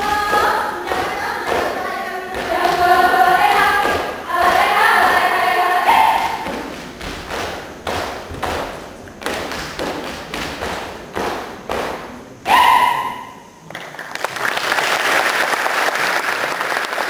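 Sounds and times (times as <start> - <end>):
group singing a chant: 0.0 - 7.0
hand claps and body slaps: 6.4 - 12.2.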